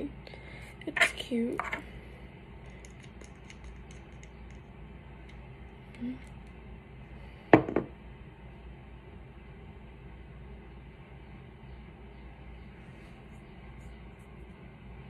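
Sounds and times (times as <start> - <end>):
glass bottle knocking on table: 7.5 - 7.9.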